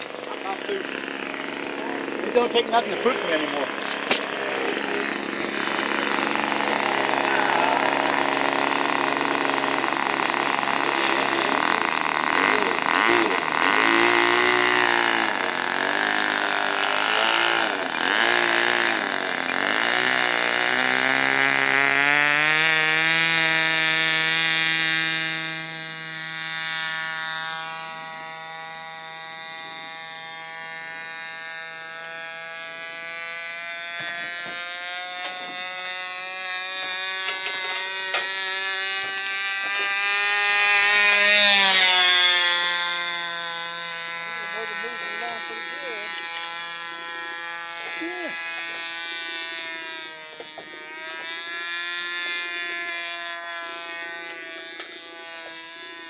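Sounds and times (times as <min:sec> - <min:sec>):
model airplane engine: 0:00.0 - 0:56.0.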